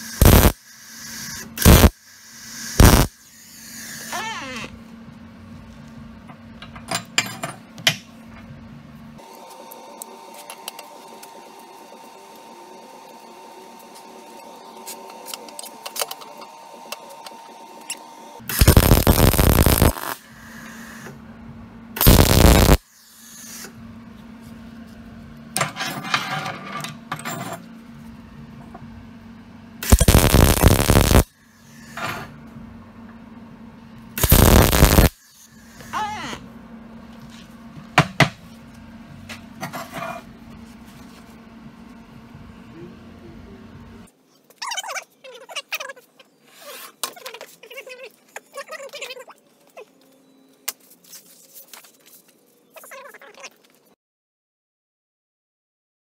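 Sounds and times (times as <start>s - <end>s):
welding arc bursts: 0.0s - 4.0s, 18.5s - 20.3s, 22.0s - 23.6s, 29.8s - 31.3s, 34.2s - 35.5s.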